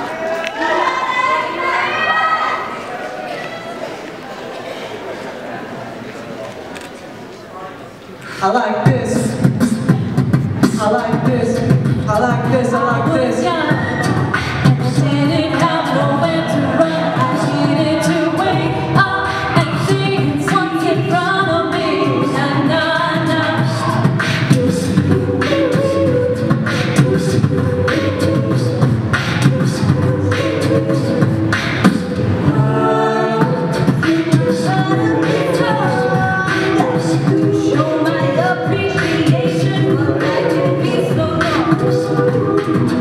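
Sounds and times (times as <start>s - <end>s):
beatboxing: 8.2s - 43.0s
group singing in harmony: 9.4s - 43.0s.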